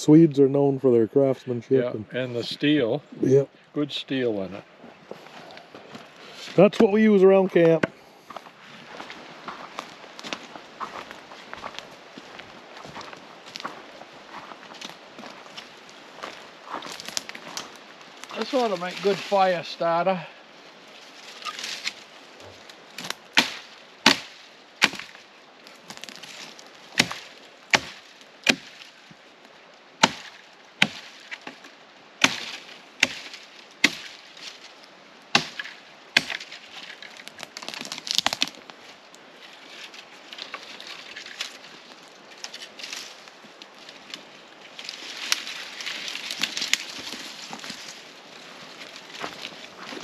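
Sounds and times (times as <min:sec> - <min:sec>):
sticks crackling and snapping: 0:14.4 - 0:19.6, 0:21.2 - 0:50.0
axe chopping branches: 0:23.0 - 0:25.2, 0:25.9 - 0:28.9, 0:30.0 - 0:34.6, 0:35.3 - 0:38.6.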